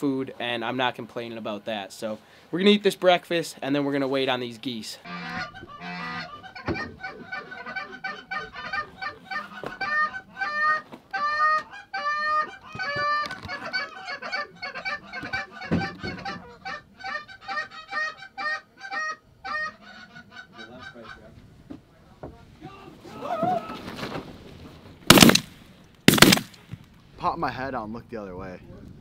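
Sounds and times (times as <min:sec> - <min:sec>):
geese honking and clucking: 0:05.0 - 0:21.4.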